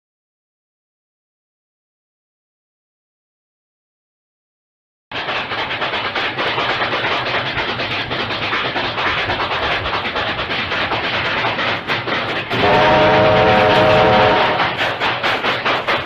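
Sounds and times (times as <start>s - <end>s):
train wheels on rails: 5.1s - 16.0s
train horn chord: 12.5s - 15.0s.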